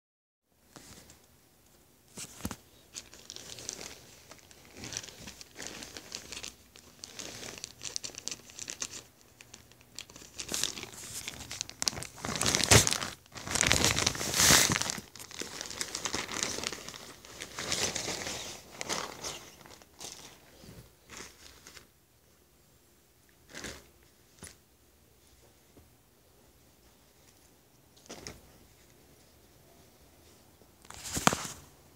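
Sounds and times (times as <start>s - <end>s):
plastic bag crinkling: 2.2s - 21.9s.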